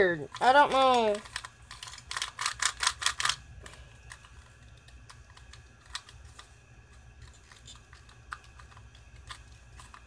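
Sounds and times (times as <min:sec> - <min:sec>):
plastic puzzle pieces clicking: 0:00.2 - 0:06.5, 0:07.2 - 0:10.0.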